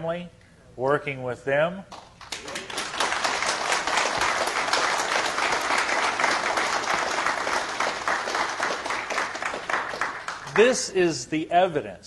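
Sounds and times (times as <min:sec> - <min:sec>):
audience applauding: 0:02.2 - 0:10.7.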